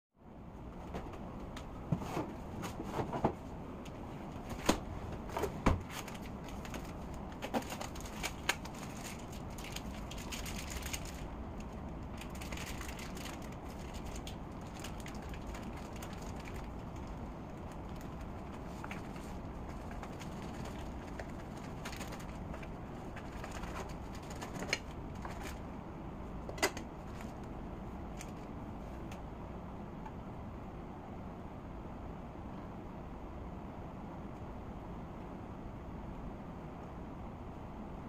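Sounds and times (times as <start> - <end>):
low background hum: 0.2 - 38.0
food packaging rustling: 4.5 - 25.6.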